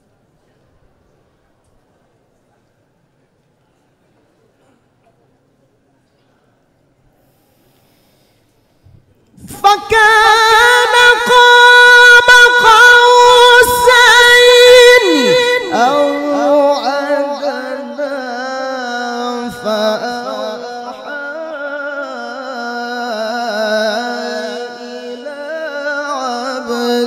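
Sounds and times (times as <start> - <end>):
man reciting melodically: 9.4 - 27.0.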